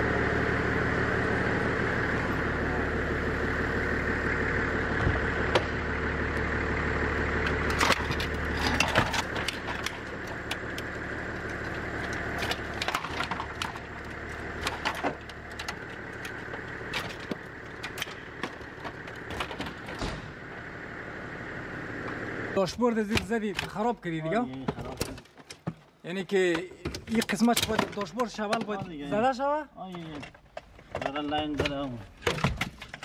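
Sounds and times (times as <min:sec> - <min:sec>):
low hum: 0:00.0 - 0:22.6
plastic and metal parts rattling: 0:07.7 - 0:20.1, 0:23.0 - 0:33.0.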